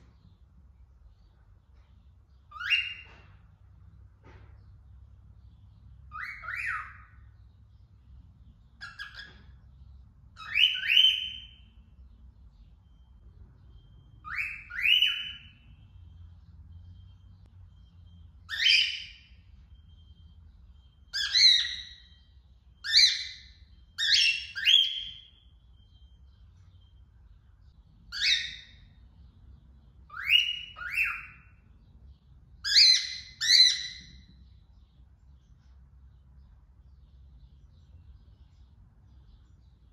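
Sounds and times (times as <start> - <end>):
bird chirps: 0.0 - 39.9
cockatiel whistling: 6.1 - 7.2, 10.4 - 11.6, 14.2 - 15.6, 18.5 - 19.3, 21.0 - 22.2, 22.8 - 25.4, 28.1 - 28.8, 30.1 - 31.6.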